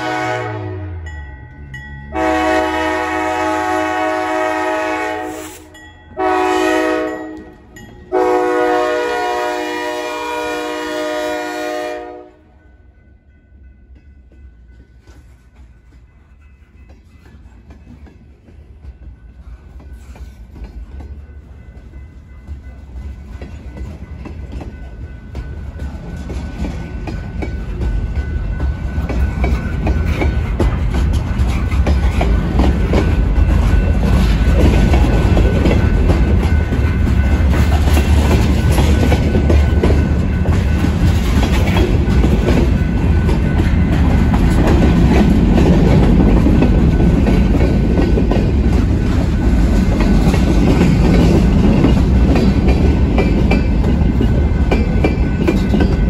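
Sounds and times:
freight train rumbling past: 0.0 - 56.0
wheels clicking over rail joints: 14.0 - 56.0.

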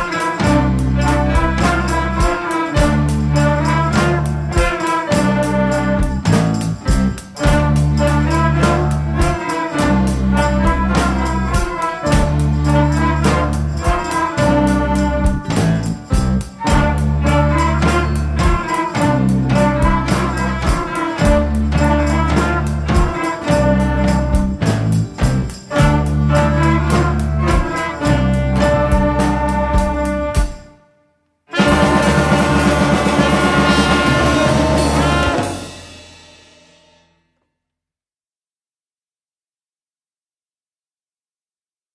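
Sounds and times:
drum strokes: 0.0 - 30.7, 31.5 - 36.9
ensemble playing loudly: 31.5 - 36.2.

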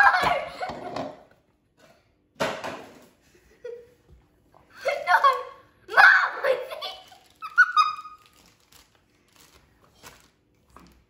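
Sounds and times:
girl laughing: 3.3 - 4.1, 4.7 - 8.3.

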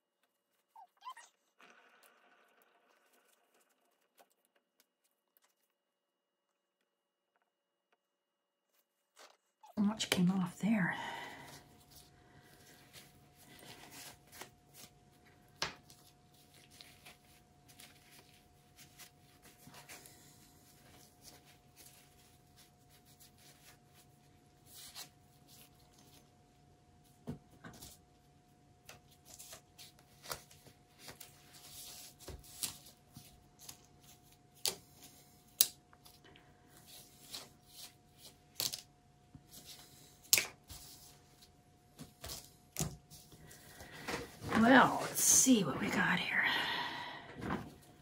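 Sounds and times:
faint steady hum: 9.7 - 48.0.

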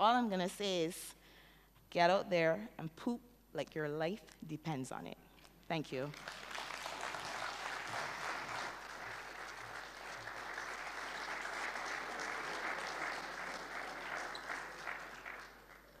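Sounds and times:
audience clapping: 6.1 - 16.0.

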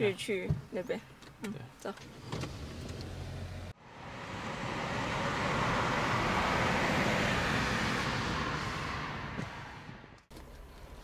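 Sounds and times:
road noise inside car: 0.0 - 11.0
low engine hum: 2.6 - 11.0.

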